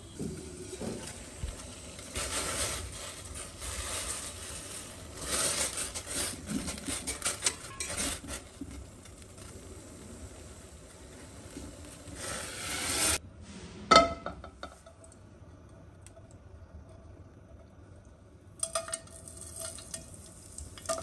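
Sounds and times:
leaves frying in hot oil: 0.0 - 13.2, 18.6 - 21.0
metal spatula scraping pot: 2.2 - 8.9.

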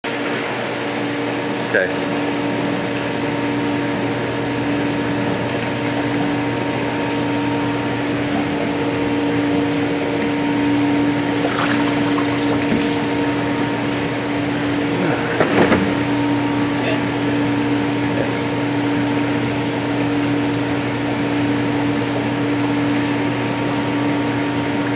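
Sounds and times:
water pumps humming: 0.0 - 24.9
water splashing: 11.0 - 15.0.

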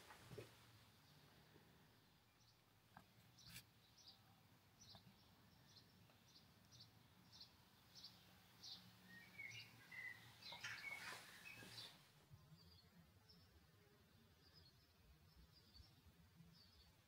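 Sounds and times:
birds chirping: 3.2 - 17.0.

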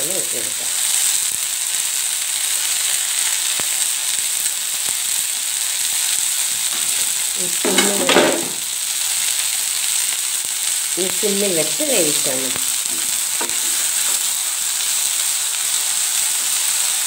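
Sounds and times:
leaves sizzling in oil: 0.0 - 17.0
spatula stirring and scraping: 12.9 - 14.3.

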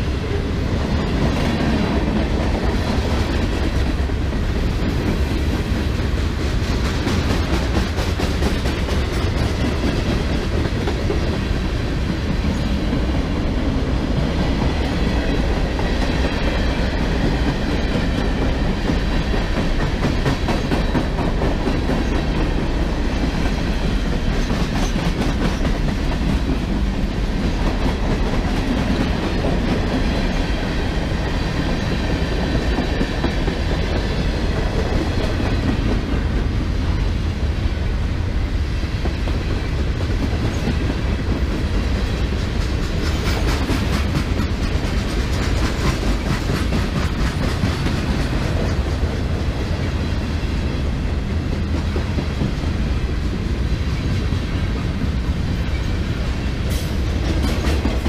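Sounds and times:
freight train rumbling: 0.0 - 58.0
train wheels clacking over rail joints: 0.9 - 13.2, 14.4 - 36.5, 39.0 - 49.4, 56.6 - 58.0.

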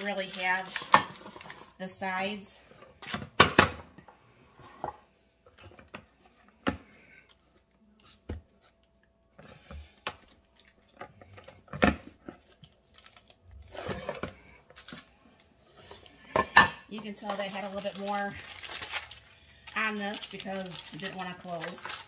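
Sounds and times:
paper rustling: 17.4 - 22.0.

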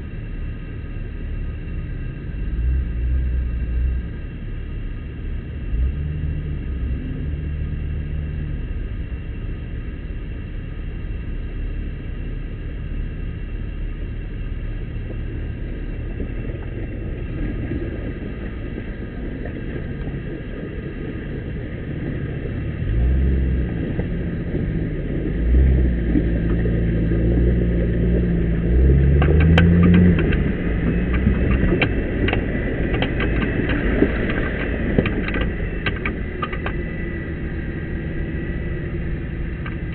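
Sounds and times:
off-road vehicle engine running: 0.0 - 39.9
sharp clicks and rattles: 28.2 - 39.9.

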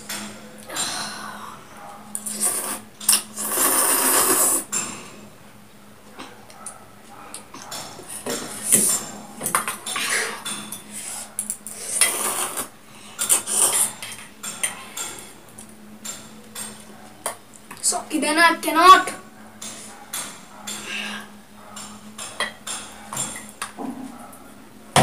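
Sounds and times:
noodle slurping: 2.2 - 4.7, 11.8 - 14.0.

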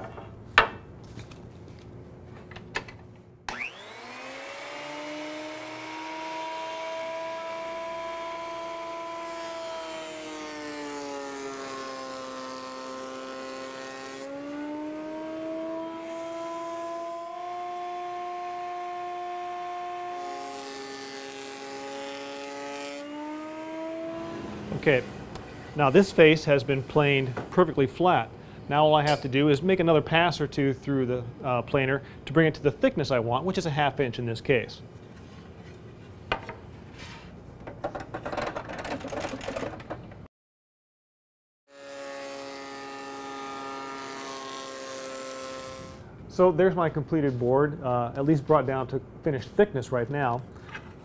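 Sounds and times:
planer cutting board: 3.5 - 25.8, 41.7 - 46.0
thickness planer running: 3.5 - 25.8, 41.7 - 46.0.

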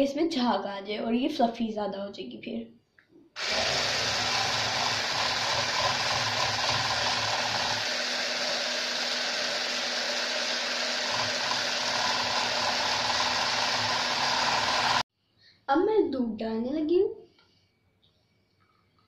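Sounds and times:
hand blender frothing milk: 3.4 - 15.0.

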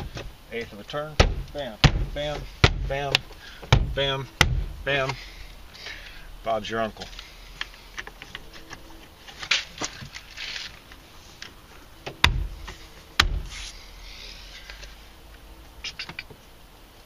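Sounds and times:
loud sharp thumps: 1.2 - 5.2, 12.0 - 13.5
rustling: 7.0 - 15.1.

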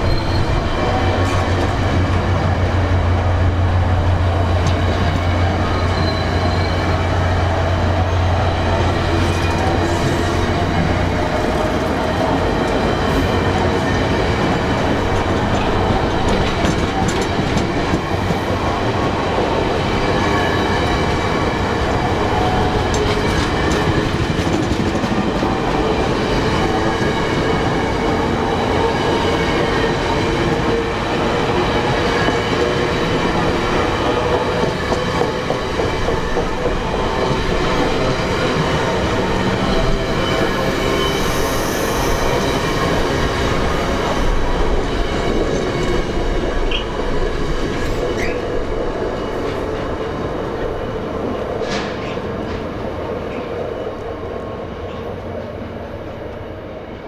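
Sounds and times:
metallic wheel squeal: 0.0 - 0.7, 5.7 - 6.9
train wheels rumbling on rails: 0.0 - 57.0.

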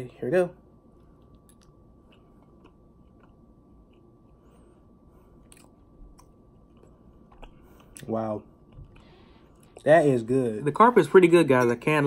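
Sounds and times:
faint chewing: 1.0 - 9.9.

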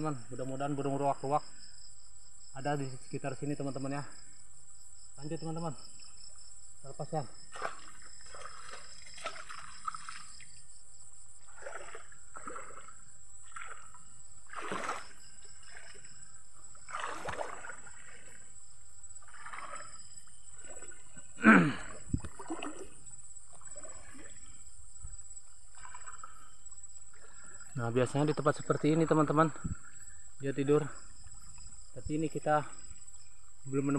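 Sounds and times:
insects trilling: 0.0 - 33.9
footsteps wading through water: 7.5 - 10.6, 11.4 - 18.6, 19.2 - 30.1.

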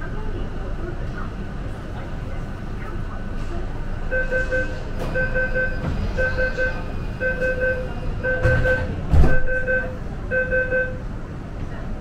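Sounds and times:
train rumble: 0.0 - 12.0
train door warning beeps: 4.1 - 11.1.

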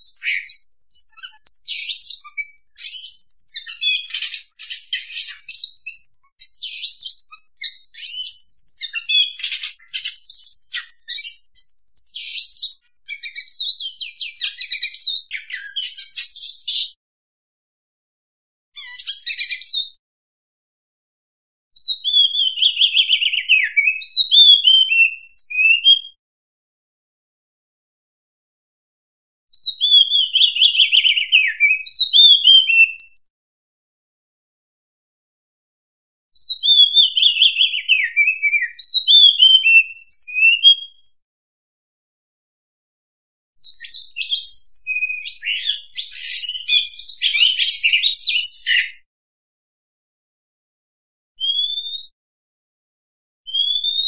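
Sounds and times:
magpie-robin singing: 0.0 - 17.0, 18.8 - 20.0, 21.8 - 26.2, 29.6 - 33.3, 36.4 - 41.2, 43.6 - 49.0, 51.4 - 52.1, 53.5 - 54.0.

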